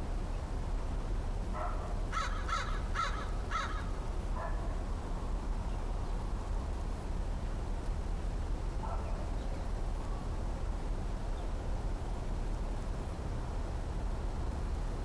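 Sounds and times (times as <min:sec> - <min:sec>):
crow cawing: 0:02.1 - 0:04.0.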